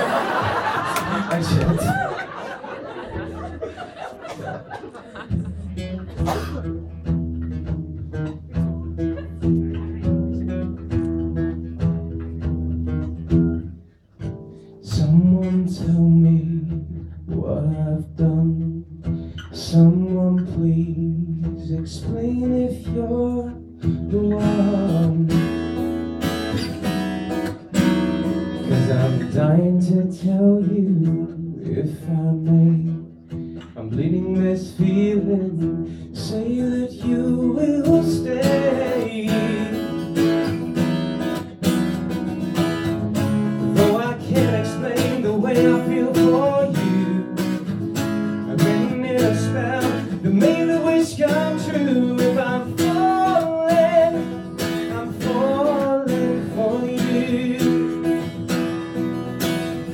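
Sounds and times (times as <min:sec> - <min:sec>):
strummed acoustic guitar: 0:00.0 - 0:59.9
man singing: 0:01.0 - 0:02.2, 0:14.8 - 0:25.8, 0:28.5 - 0:40.5, 0:43.2 - 0:58.4.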